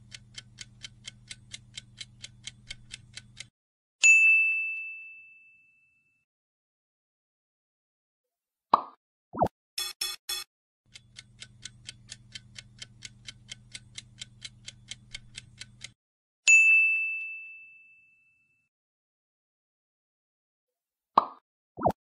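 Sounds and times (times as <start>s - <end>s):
clock ticking: 0.0s - 3.5s, 9.8s - 16.0s
bell ding: 4.0s - 6.2s, 16.5s - 18.7s.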